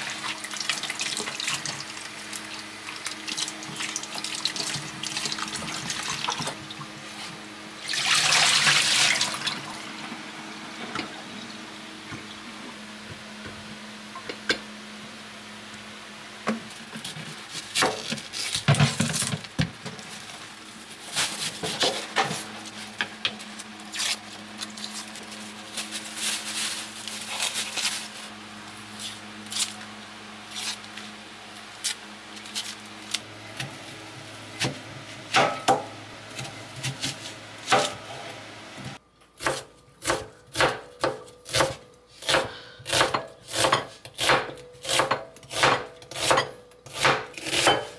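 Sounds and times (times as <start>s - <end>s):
knife chopping on cutting board: 39.4s - 47.9s.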